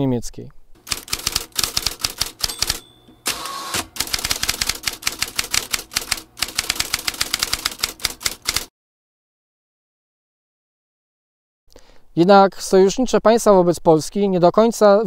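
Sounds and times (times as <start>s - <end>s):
typewriter keys clacking: 0.8s - 8.7s.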